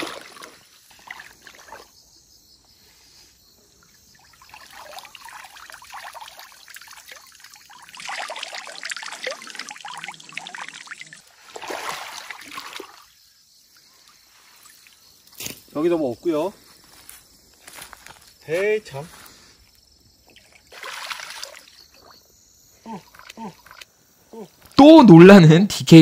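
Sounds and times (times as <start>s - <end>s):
wading through shallow water: 0.0s - 2.0s, 4.0s - 13.2s, 20.2s - 23.8s
water splashing and trickling: 0.0s - 2.0s, 3.8s - 15.7s, 18.5s - 24.0s.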